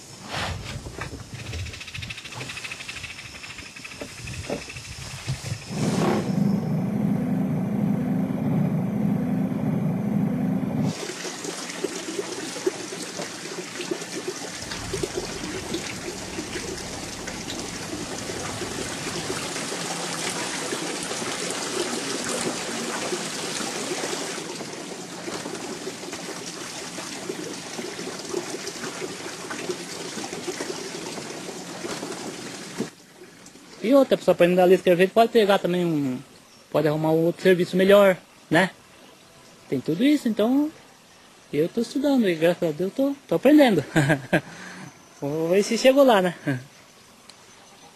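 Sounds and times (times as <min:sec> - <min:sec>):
boat motor droning: 0:05.6 - 0:10.9, 0:14.6 - 0:22.8
water splashing and trickling: 0:10.9 - 0:35.5.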